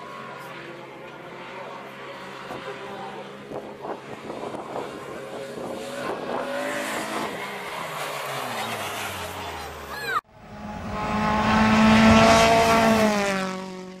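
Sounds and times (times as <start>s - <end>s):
race car engine easing off: 4.5s - 14.0s.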